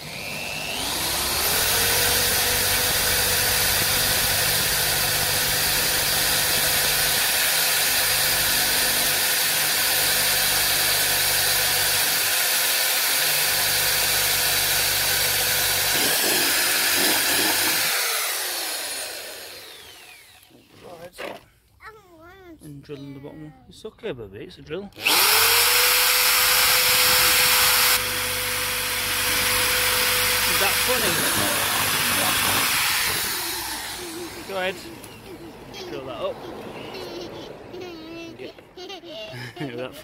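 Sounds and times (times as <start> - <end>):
electric drill boring plastic: 0.0 - 20.6, 25.0 - 35.1.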